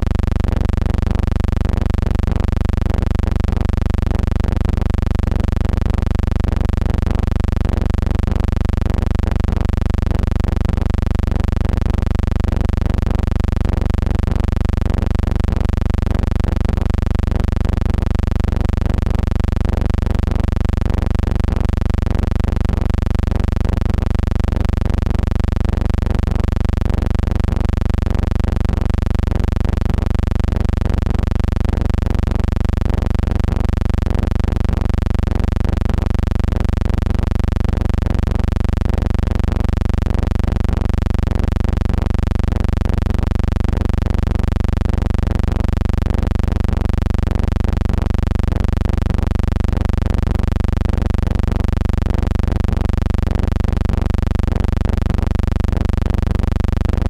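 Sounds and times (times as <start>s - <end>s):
low electrical hum: 0.0s - 4.2s.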